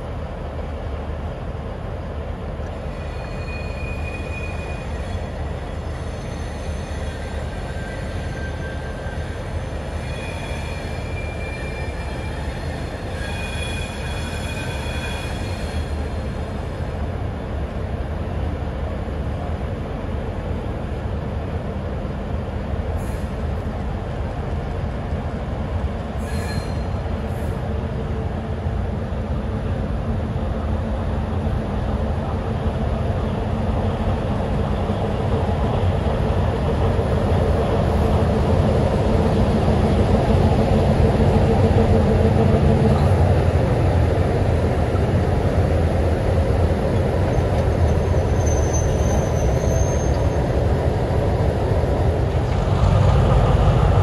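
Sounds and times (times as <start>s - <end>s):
diesel locomotive engines droning: 0.0s - 54.0s
high wheel squeal: 2.9s - 16.1s, 26.2s - 27.0s, 47.3s - 50.6s.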